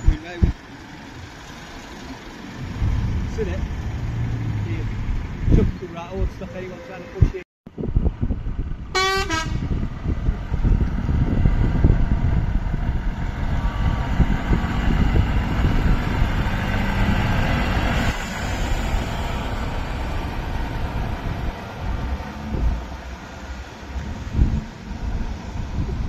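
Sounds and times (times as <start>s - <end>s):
lorry diesel engine rumbling: 0.0s - 26.0s.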